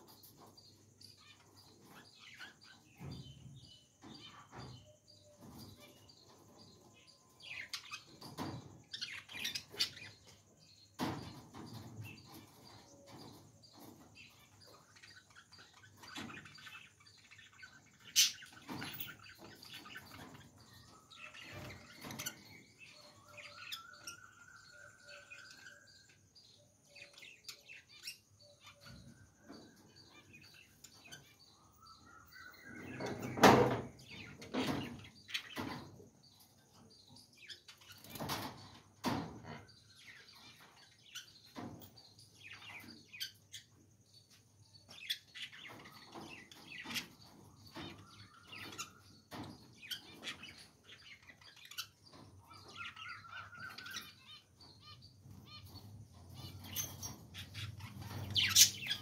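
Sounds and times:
budgerigars chattering and chirping: 44.8 - 59.0.

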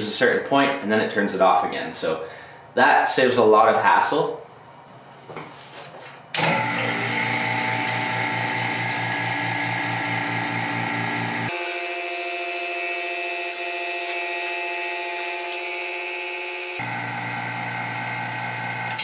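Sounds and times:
vacuum pump pulsing hum: 6.4 - 19.0.

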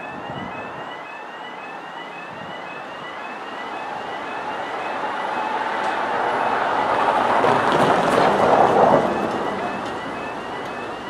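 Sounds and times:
level crossing alarm: 0.0 - 11.0.

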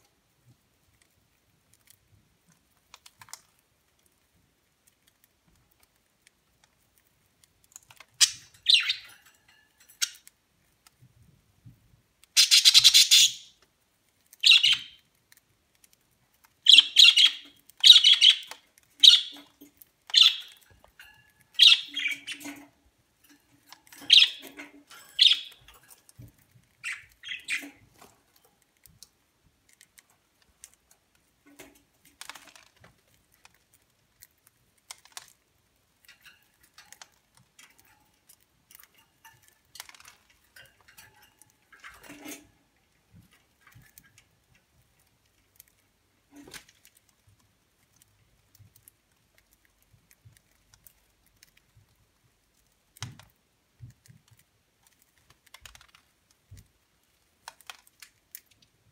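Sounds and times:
budgerigars chirping and squawking: 8.2 - 9.2, 12.4 - 13.5, 14.4 - 15.0, 16.7 - 19.5, 20.2 - 20.6, 21.6 - 22.6, 24.0 - 25.6, 26.8 - 27.8.

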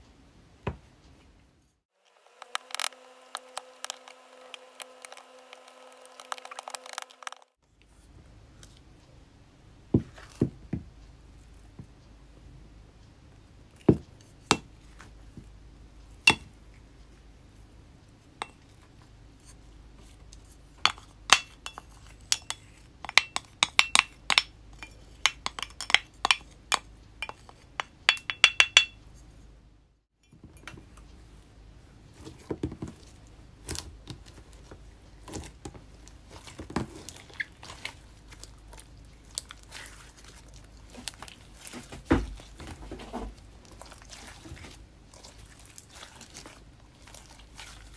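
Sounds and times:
wooden spoon tapping container: 16.3 - 16.5, 20.9 - 29.0
hands squishing slime: 32.1 - 42.6, 43.3 - 47.9.

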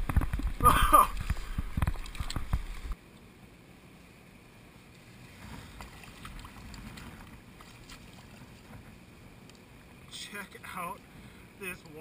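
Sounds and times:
wind rumble on microphone: 0.0 - 3.0, 5.3 - 9.1
handling and water noise: 0.0 - 12.0.

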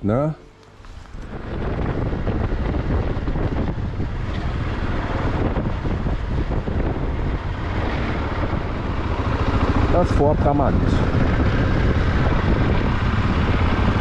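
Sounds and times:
wind noise on microphone: 0.8 - 14.0
motorcycle engine running: 1.0 - 14.0.

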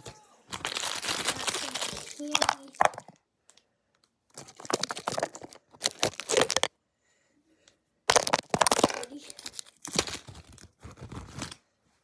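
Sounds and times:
candy wrapper crinkling: 0.5 - 3.1, 4.3 - 6.7, 8.1 - 11.6.

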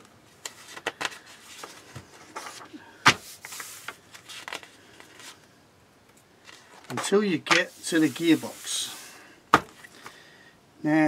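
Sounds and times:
paper pages turning: 0.4 - 5.4
paper rustling: 0.4 - 5.4, 6.5 - 9.1.

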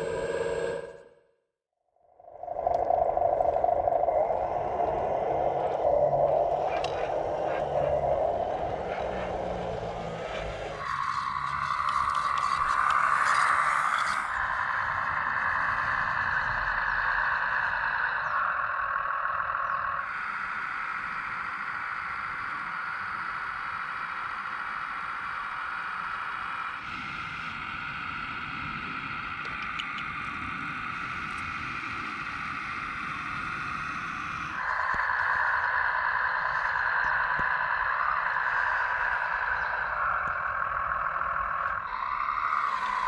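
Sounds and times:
small electric motors whining: 6.5 - 43.0.

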